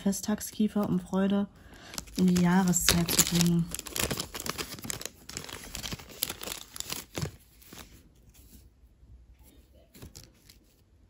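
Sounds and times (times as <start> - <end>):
plastic bag crinkling: 1.7 - 8.0.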